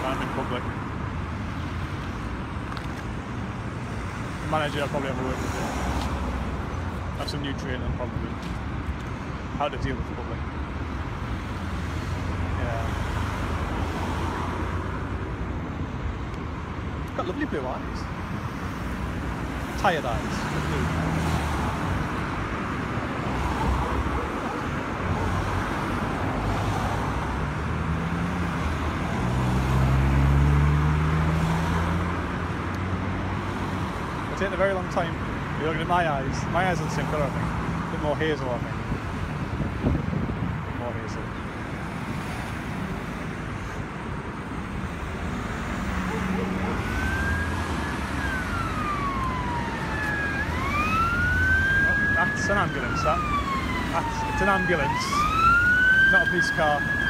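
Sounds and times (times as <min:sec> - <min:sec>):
road traffic: 0:00.0 - 0:57.0
ambulance siren wailing: 0:23.4 - 0:26.0, 0:45.7 - 0:57.0.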